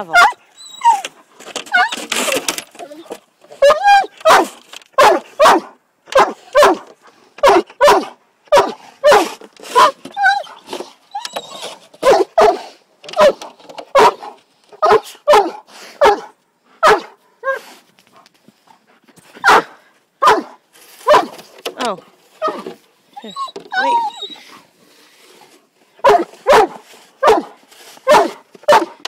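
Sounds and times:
dog barking: 0:03.6 - 0:10.0, 0:12.0 - 0:17.6, 0:19.4 - 0:21.3, 0:26.0 - 0:29.0.

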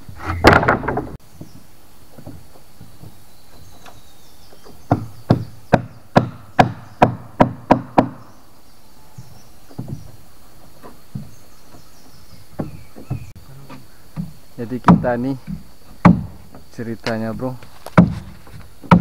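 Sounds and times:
tool knocking on wood: 0:04.6 - 0:08.2, 0:09.7 - 0:10.2, 0:14.1 - 0:16.7, 0:17.9 - 0:19.0.

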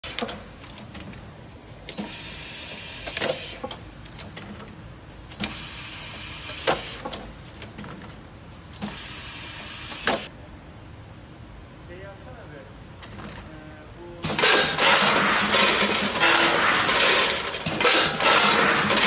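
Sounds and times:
pneumatic air hiss: 0:01.9 - 0:03.8, 0:05.2 - 0:07.2, 0:08.8 - 0:10.3
sharp machine clack: 0:14.2 - 0:19.0.

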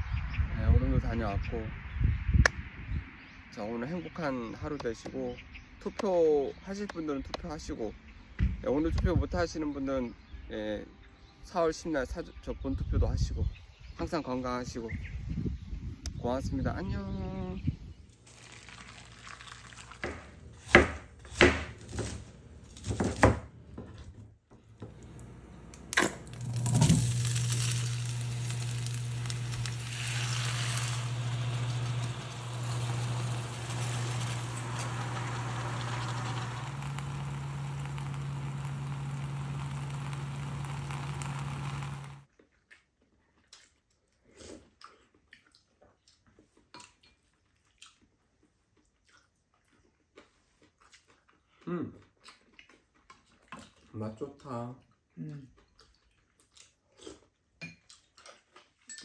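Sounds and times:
fish cake sizzling in frying pan: 0:18.2 - 0:20.4, 0:26.3 - 0:42.2
low steady hum: 0:24.6 - 0:42.3.

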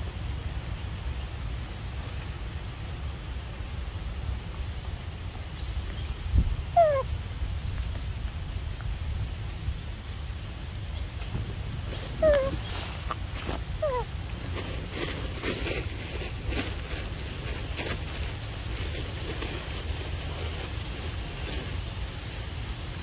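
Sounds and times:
low steady rumble: 0:00.0 - 0:23.0
macaque calls sliding down: 0:12.1 - 0:14.1.

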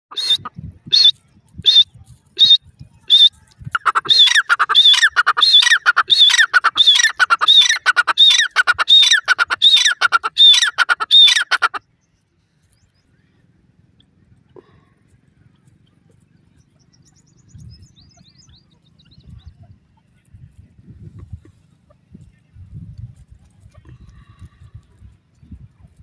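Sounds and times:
francolin calling: 0:00.1 - 0:01.8, 0:02.4 - 0:11.9.

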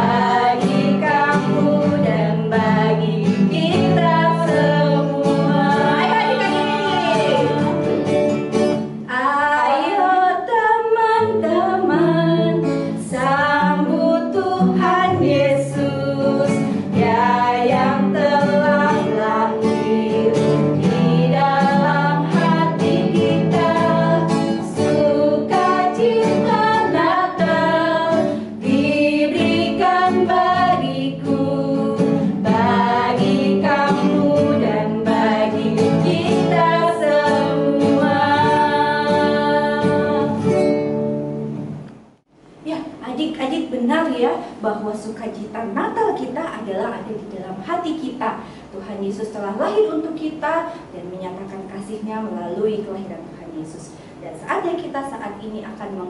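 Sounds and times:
woman singing: 0:00.0 - 0:07.9, 0:09.1 - 0:40.5
acoustic guitar: 0:00.0 - 0:42.4.

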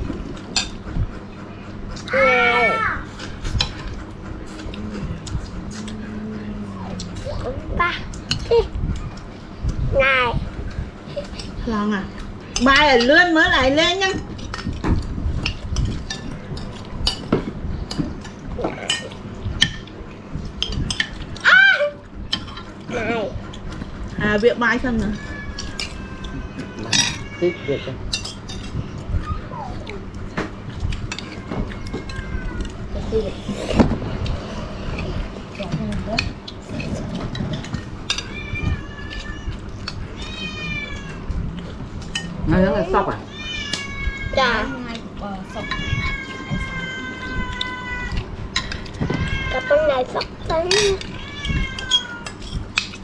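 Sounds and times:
cat meowing: 0:25.0 - 0:28.0, 0:31.1 - 0:33.0, 0:38.2 - 0:41.4, 0:42.7 - 0:48.3, 0:49.0 - 0:50.1, 0:50.8 - 0:52.4.

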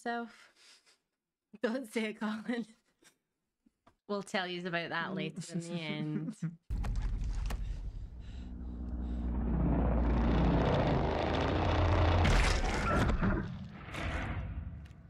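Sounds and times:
deep rumble with low tones: 0:06.7 - 0:15.0.

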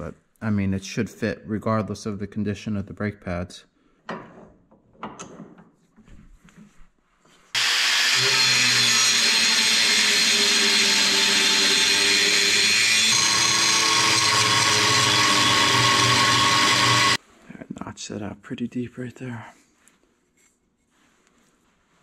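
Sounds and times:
power tool cutting metal: 0:07.6 - 0:17.2.

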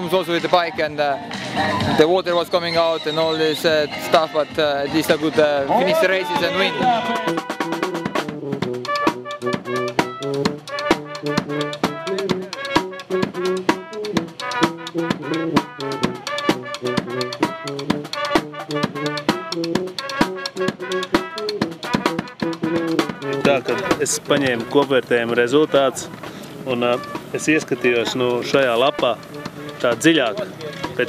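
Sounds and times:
music with drums and brass: 0:00.0 - 0:31.0.

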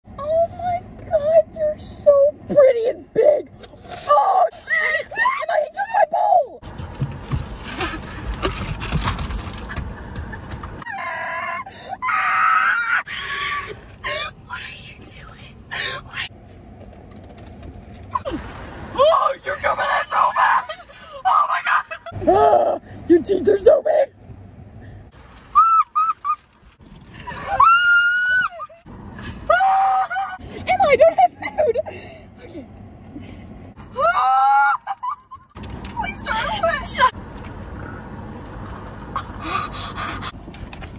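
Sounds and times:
young woman screaming: 0:04.1 - 0:06.5, 0:10.9 - 0:14.2, 0:19.0 - 0:22.8, 0:25.6 - 0:26.1, 0:27.5 - 0:28.8, 0:29.5 - 0:30.4, 0:34.0 - 0:35.0
rustling and knocking: 0:06.6 - 0:10.8
woman shrieking in fright: 0:10.9 - 0:14.2, 0:27.4 - 0:28.8, 0:29.5 - 0:30.4, 0:34.0 - 0:35.0.

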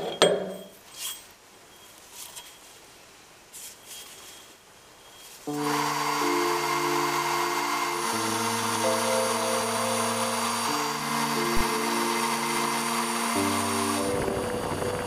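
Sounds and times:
background music of held chords: 0:05.5 - 0:15.0
milling machine cutting metal: 0:05.5 - 0:15.0.

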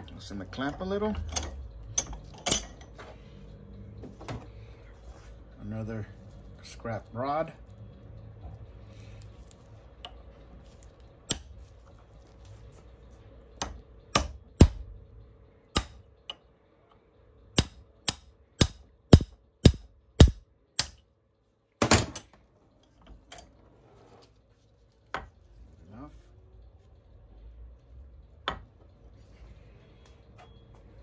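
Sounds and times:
sharp metal knocks: 0:13.6 - 0:14.9, 0:15.8 - 0:16.0, 0:17.6 - 0:21.0.

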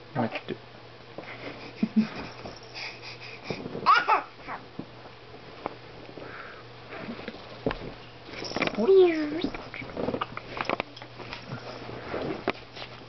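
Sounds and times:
baby squealing: 0:03.8 - 0:04.6.

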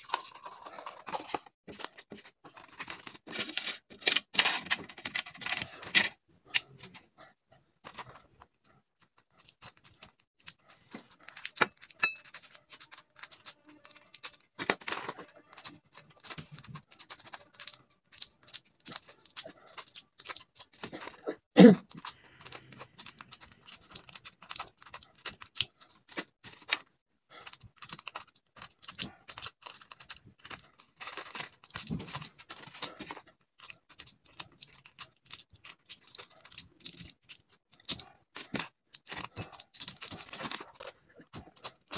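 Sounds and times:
capsules popping from blister packs: 0:10.7 - 0:26.9.

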